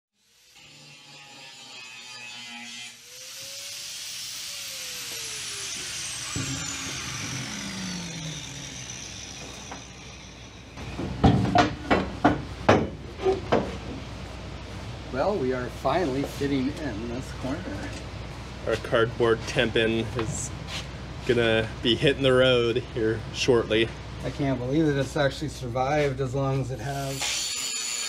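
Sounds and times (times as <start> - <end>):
power tool whine: 0.1 - 11.1, 27.0 - 28.0.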